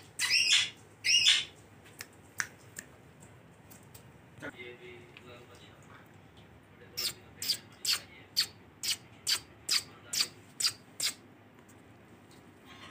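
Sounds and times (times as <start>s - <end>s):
parakeet shrill calls: 0.2s - 1.5s.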